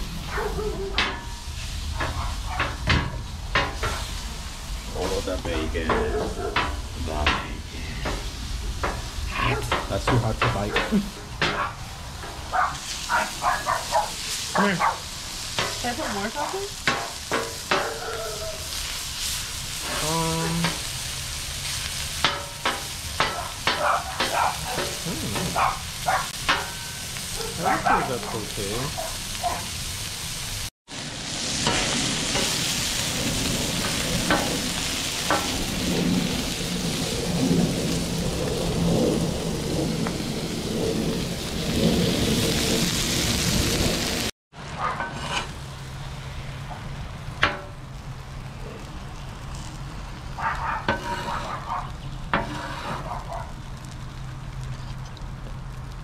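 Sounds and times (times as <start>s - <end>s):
food sizzling on a griddle: 0.0s - 44.3s, 45.0s - 56.0s
stirring clicks and scrapes: 50.5s - 53.5s.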